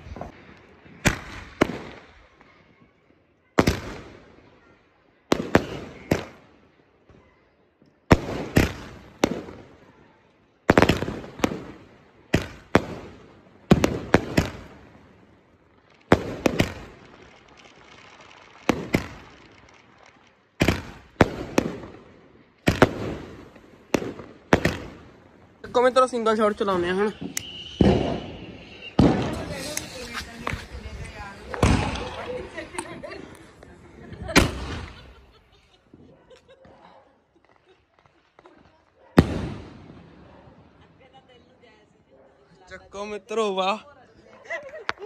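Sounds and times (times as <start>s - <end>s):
firework shells cracking: 16.0s - 21.9s, 26.6s - 33.7s
firework launch bangs: 26.7s - 33.4s, 34.2s - 35.3s, 39.2s - 40.2s.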